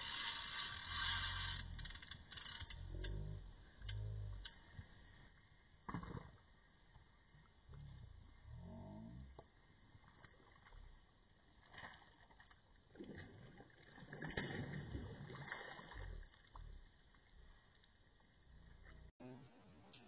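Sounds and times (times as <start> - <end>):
fish splashing and thrashing in water: 9.8 - 17.3.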